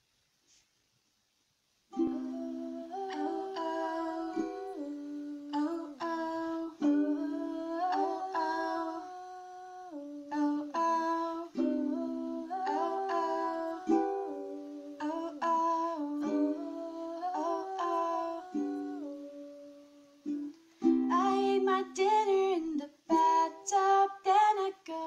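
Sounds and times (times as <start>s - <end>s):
ukulele strumming chords: 1.9s - 9.4s, 10.2s - 25.0s
woman humming: 2.0s - 20.4s.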